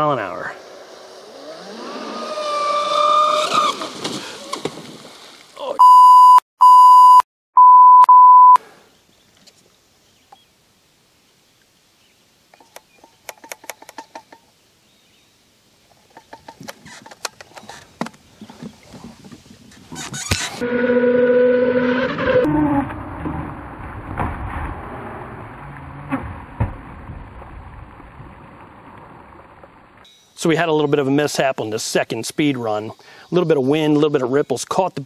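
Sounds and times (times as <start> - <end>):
electronic beeps: 5.8 - 8.6.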